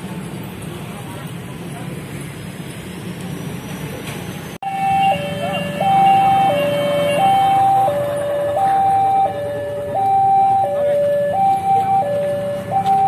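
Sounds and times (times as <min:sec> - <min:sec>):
road traffic noise: 0:00.0 - 0:13.0
level crossing alarm two-note tone: 0:04.6 - 0:13.0.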